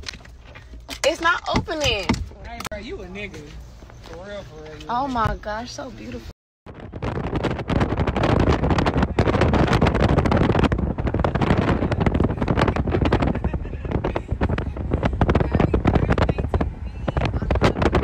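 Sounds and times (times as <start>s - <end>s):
wind buffeting microphone: 3.9s - 18.0s.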